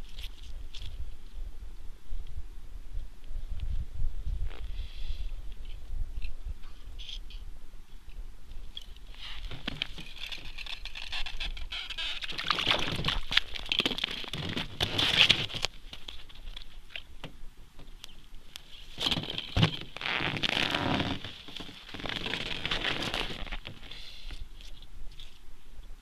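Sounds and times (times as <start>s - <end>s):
snow and ice crunching: 9.1s - 16.4s, 18.7s - 24.0s
winter clothing rustling: 19.9s - 24.0s.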